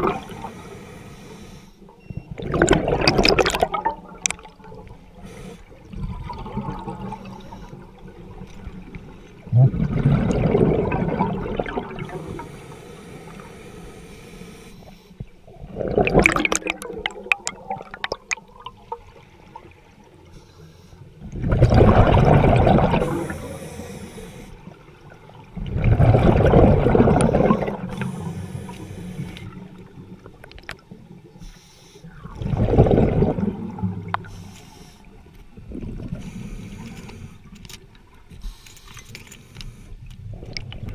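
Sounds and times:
underwater air bubbling: 0.0s - 20.4s, 21.0s - 38.6s
sharp underwater clicks: 2.5s - 5.0s, 16.0s - 18.8s.

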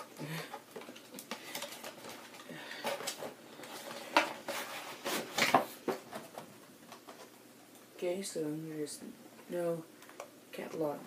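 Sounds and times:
cardboard packaging rustling: 0.0s - 7.3s.

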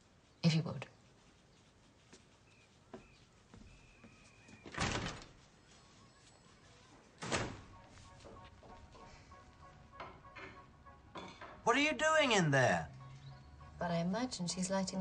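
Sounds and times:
faint high chirps: 5.4s - 7.1s.

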